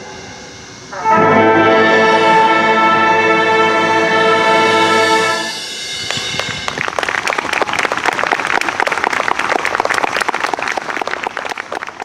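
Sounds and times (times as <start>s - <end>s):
concert band held chord: 0.0s - 7.4s
audience applauding: 6.1s - 12.0s.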